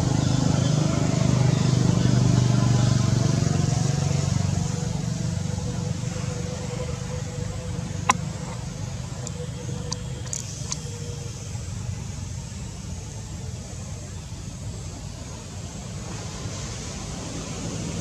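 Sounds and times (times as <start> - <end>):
vehicle engine rumbling: 0.0 - 18.0
faint clicks: 8.0 - 10.9.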